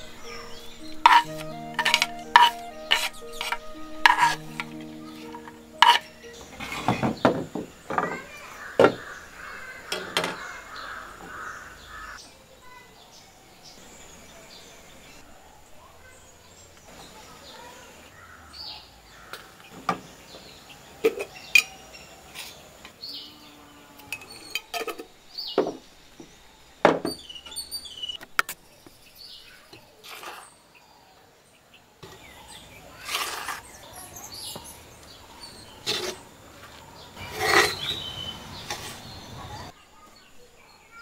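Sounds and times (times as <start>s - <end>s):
birds chirping: 0.0s - 24.6s, 30.8s - 41.0s
wooden spoon stirring mixture: 0.3s - 1.2s, 1.8s - 4.4s
utensils clinking against clay pot: 0.3s - 4.7s, 5.8s - 6.2s.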